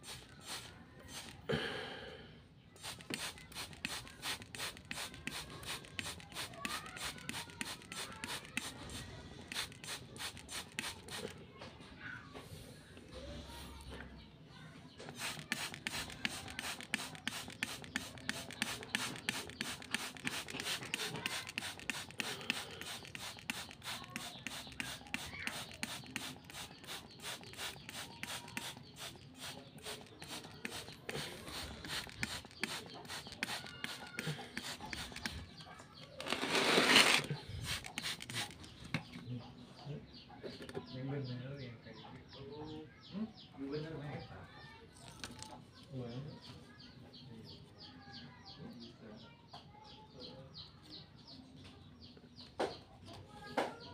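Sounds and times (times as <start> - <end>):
spray bottle squirting mist: 0.0 - 1.5, 2.8 - 11.4, 15.1 - 35.6, 36.2 - 39.1.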